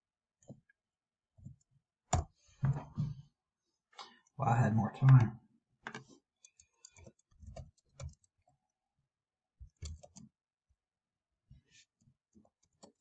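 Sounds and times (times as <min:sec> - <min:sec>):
faint keyboard typing: 0:05.8 - 0:08.5, 0:09.6 - 0:10.3, 0:12.3 - 0:13.0.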